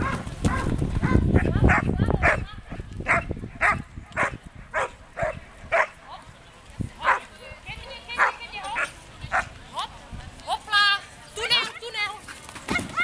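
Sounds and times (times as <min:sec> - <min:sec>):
dog barking: 0:00.0 - 0:02.4, 0:03.1 - 0:05.9.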